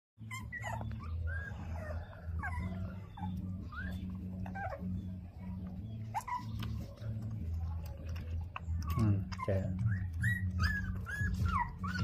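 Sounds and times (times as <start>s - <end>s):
puppies whimpering: 0.2s - 12.0s.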